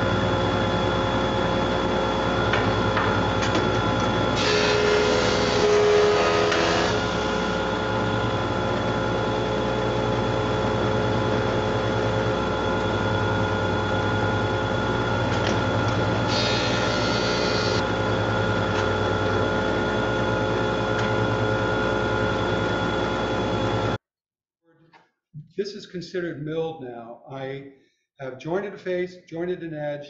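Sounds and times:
thickness planer humming: 0.0 - 24.0
planer cutting board: 4.4 - 7.5, 16.3 - 17.8.

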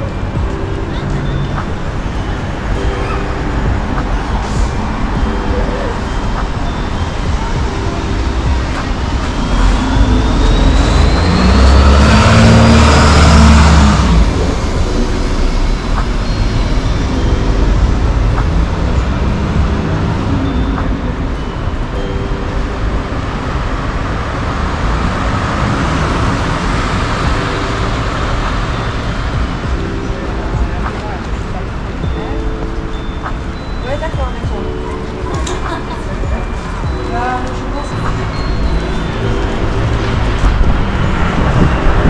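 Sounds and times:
steady street traffic: 0.0 - 42.0
vehicle passing close with whine: 8.1 - 21.2, 22.7 - 29.6, 37.9 - 42.0.

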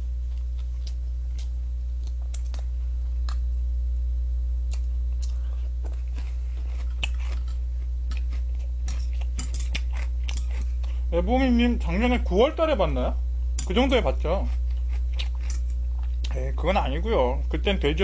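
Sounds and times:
low electrical hum: 0.0 - 18.0
person chewing food: 0.1 - 3.5, 4.6 - 11.1, 14.4 - 16.4.

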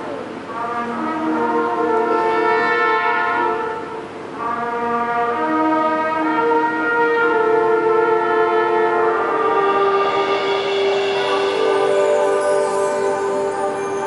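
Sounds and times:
concert band playing chords: 7.3 - 14.0.

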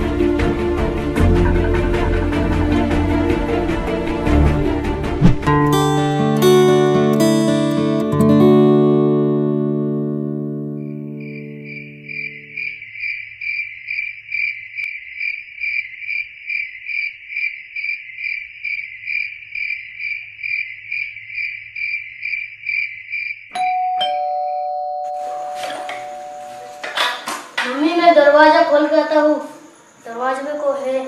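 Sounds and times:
rustling noise: 5.2 - 5.6
cricket chirping: 10.7 - 23.8, 25.3 - 31.0
steady ringing tone: 23.5 - 27.2.

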